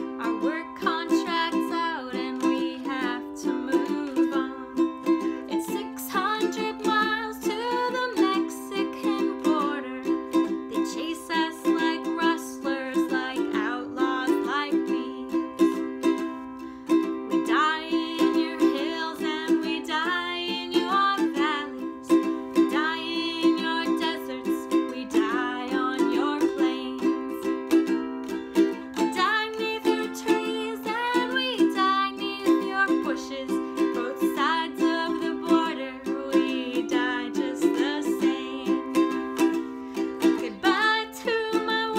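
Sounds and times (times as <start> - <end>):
ukulele strumming: 0.0 - 41.9.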